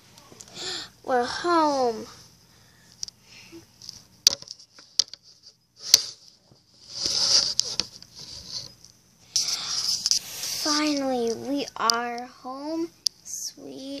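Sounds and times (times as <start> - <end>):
rustling: 3.8 - 8.8.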